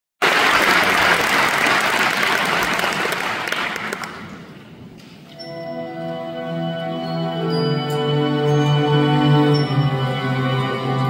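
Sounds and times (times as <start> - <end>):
audience applauding: 0.2 - 4.4
orchestra holding notes: 5.3 - 11.0.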